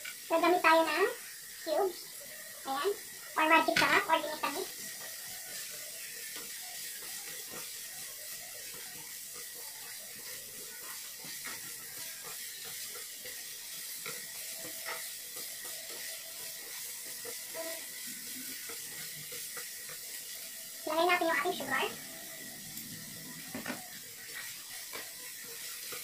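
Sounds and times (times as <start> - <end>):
vegetables frying hiss: 0.0 - 26.0
chopsticks scraping pan: 8.6 - 20.4.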